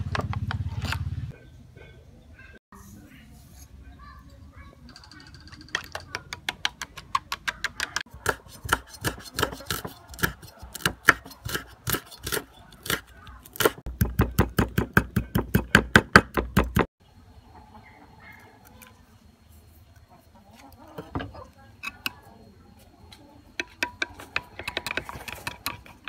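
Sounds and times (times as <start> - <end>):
cleaver chopping on wooden block: 6.6 - 16.9.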